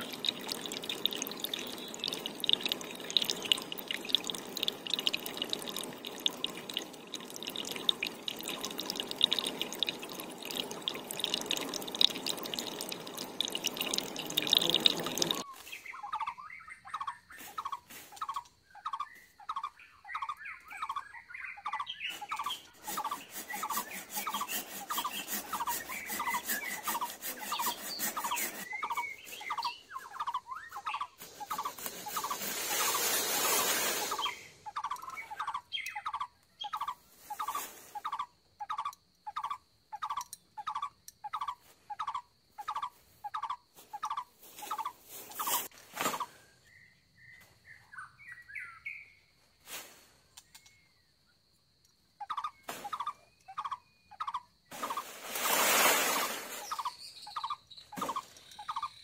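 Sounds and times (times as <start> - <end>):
water splashing and trickling: 0.0 - 15.5, 22.2 - 35.7, 54.7 - 57.0.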